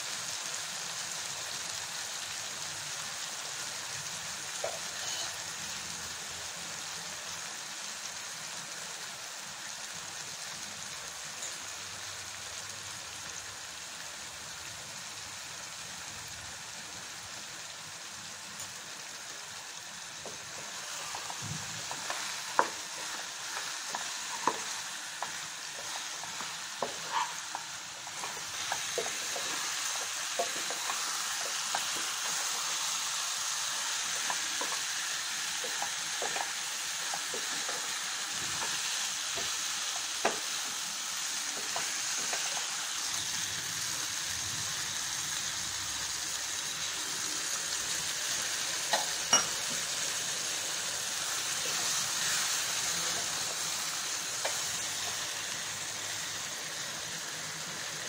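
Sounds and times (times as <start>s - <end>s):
chicken sizzling in a pan: 0.0s - 58.0s
wooden spatula scraping a pan: 4.7s - 5.4s, 20.3s - 32.7s.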